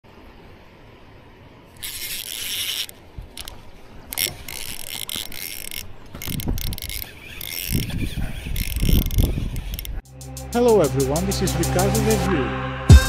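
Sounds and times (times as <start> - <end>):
fishing reel whirring: 1.8 - 10.0.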